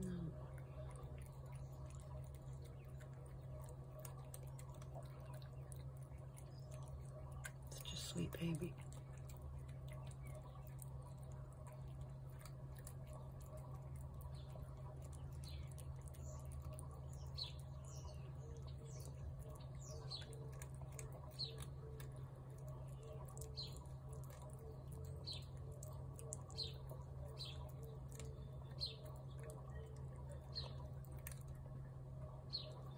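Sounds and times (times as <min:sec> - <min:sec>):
cat chewing wet food: 0:00.0 - 0:32.9
small bird chirping: 0:09.9 - 0:31.4.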